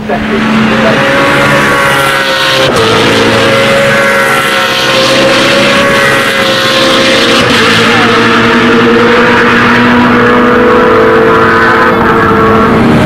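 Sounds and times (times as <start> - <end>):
race car engine accelerating: 0.0 - 13.0.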